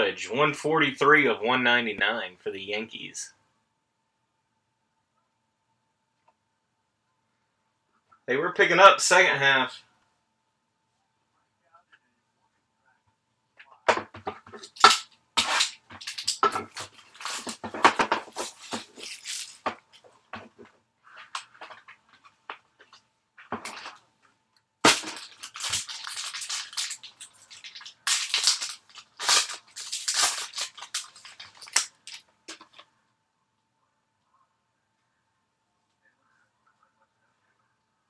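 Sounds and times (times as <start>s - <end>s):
cardboard and paper rustling: 14.0s - 22.4s, 25.2s - 32.9s.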